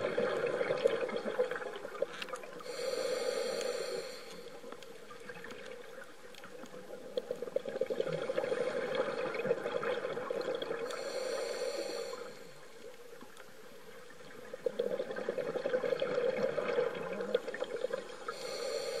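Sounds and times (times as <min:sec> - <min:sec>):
bubbling exhaled air underwater: 0:00.0 - 0:12.6, 0:14.0 - 0:19.0
regulator inhale hiss: 0:02.6 - 0:04.9, 0:10.8 - 0:13.0, 0:18.1 - 0:19.0.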